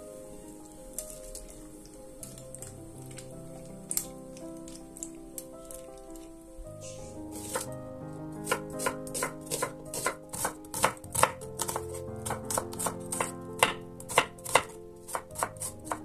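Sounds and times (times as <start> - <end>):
knife chopping on wooden board: 7.3 - 7.7, 8.4 - 16.0.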